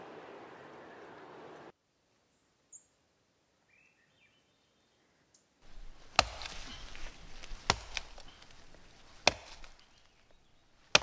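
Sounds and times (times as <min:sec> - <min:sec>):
axe chopping wood: 0:05.7 - 0:10.2.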